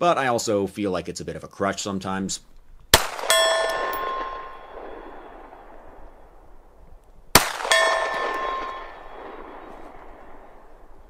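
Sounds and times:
pistol shot: 0:02.9 - 0:06.2, 0:07.3 - 0:11.0
bullet clanging on steel target: 0:03.2 - 0:05.2, 0:07.5 - 0:09.7.

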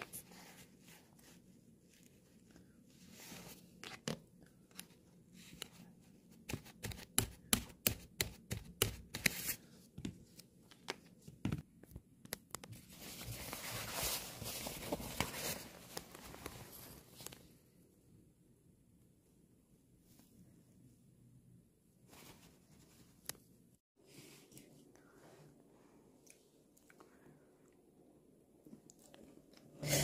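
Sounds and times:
nylon fabric rustling: 0:12.9 - 0:17.4.

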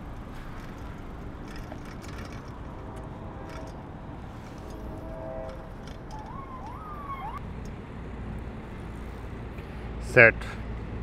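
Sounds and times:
bicycle clicks and rattles: 0:00.0 - 0:07.8
street traffic rumble: 0:00.0 - 0:11.0
faint siren: 0:03.2 - 0:07.4.

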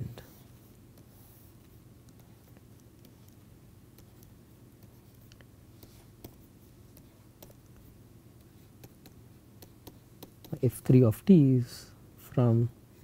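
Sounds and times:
low steady hum: 0:00.0 - 0:13.0
stylus tapping on tablet screen: 0:08.4 - 0:10.6.

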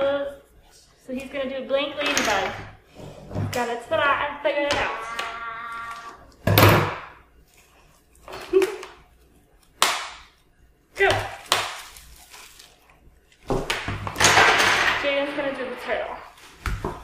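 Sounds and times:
plastic wrapping crinkling rips: 0:11.2 - 0:13.4.

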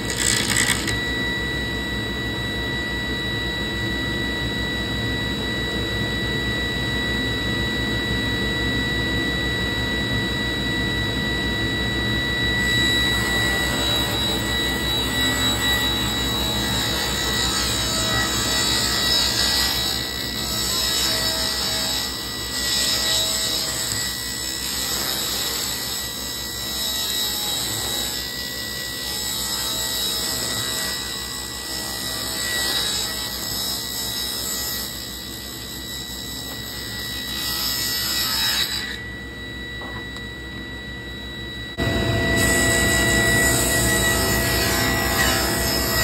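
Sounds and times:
table saw cutting wood: 0:00.0 - 0:01.3, 0:12.6 - 0:39.2, 0:41.8 - 0:46.0.

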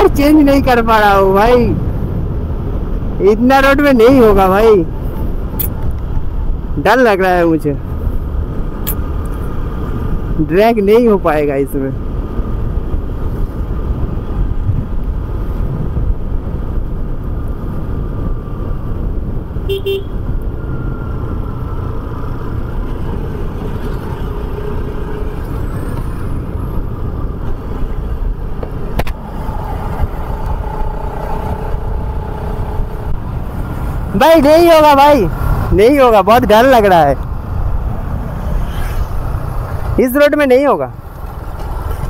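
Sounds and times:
wind rush: 0:00.0 - 0:42.0
horn toot: 0:19.7 - 0:20.2.

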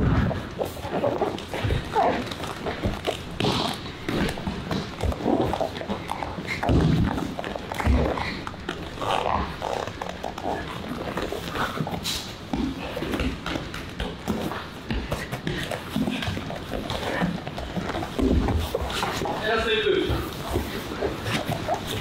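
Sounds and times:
strained grunts: 0:00.0 - 0:22.0
bodies thudding on mat: 0:06.5 - 0:08.0.

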